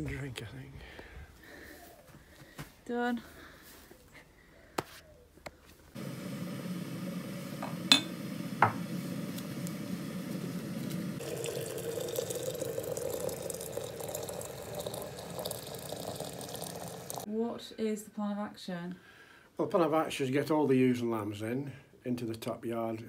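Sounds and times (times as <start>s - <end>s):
water pouring into ceramic teapot: 7.0s - 17.3s.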